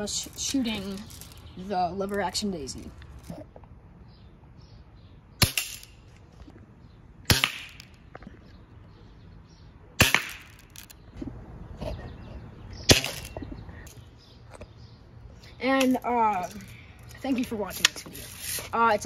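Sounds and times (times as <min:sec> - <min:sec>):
air rifle shots snapping: 0:05.4 - 0:05.9, 0:07.3 - 0:08.0, 0:10.0 - 0:11.0.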